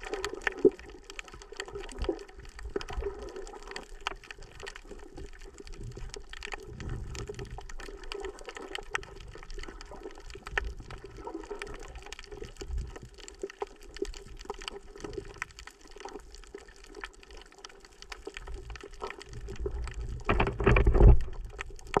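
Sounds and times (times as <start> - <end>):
crackle of small underwater clicks: 0.0 - 22.0
muffled rumble of moving water: 0.0 - 22.0.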